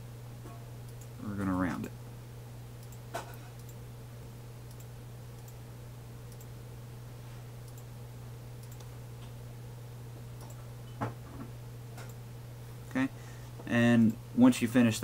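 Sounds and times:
steady low hum: 0:00.0 - 0:15.0
computer mouse clicks: 0:03.6 - 0:03.8, 0:04.7 - 0:05.6, 0:08.6 - 0:08.9, 0:10.4 - 0:10.6.

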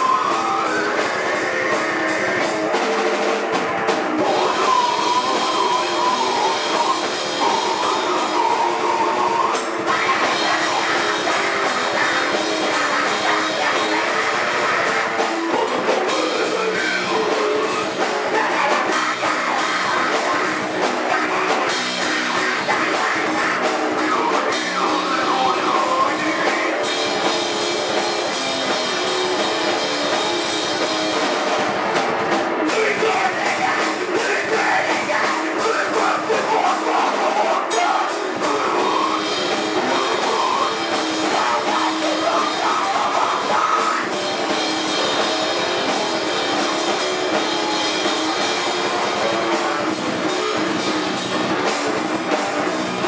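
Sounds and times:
harsh screamed vocals: 0:00.0 - 0:02.8, 0:03.5 - 0:53.0
distorted electric guitar: 0:00.0 - 0:53.0
drum kit: 0:00.0 - 0:53.0.

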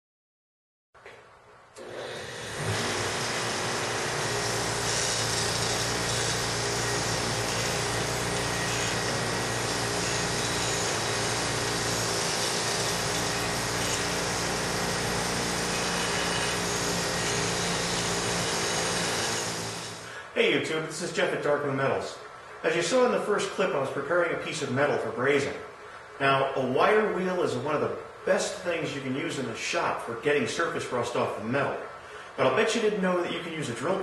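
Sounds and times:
bench grinder motor hum: 0:01.8 - 0:20.1
wire wheel scratching steel: 0:02.5 - 0:20.0.

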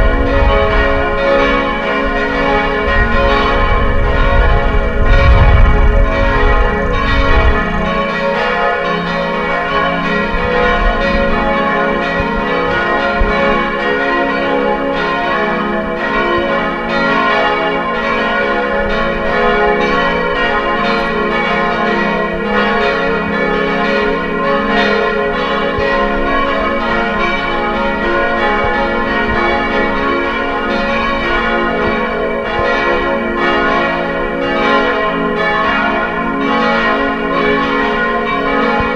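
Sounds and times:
church bells ringing: 0:00.0 - 0:38.9
low rumble: 0:02.0 - 0:08.0.

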